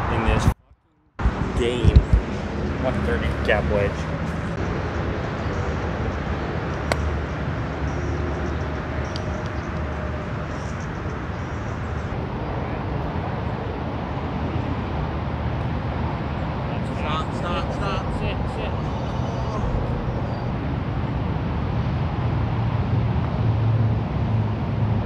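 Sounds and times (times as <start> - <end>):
low outdoor rumble: 0.0 - 25.0
golf club striking ball: 6.9 - 7.1.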